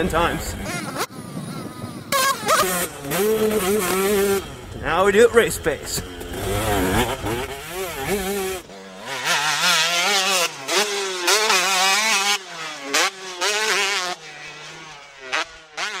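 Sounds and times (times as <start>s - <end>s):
motocross bike engines revving: 0.0s - 16.0s.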